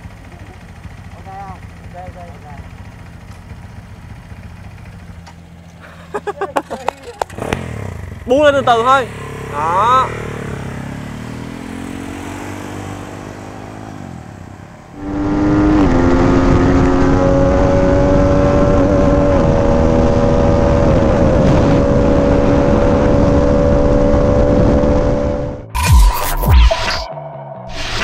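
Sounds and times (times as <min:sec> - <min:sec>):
motorcycle engine running: 0:00.0 - 0:12.1.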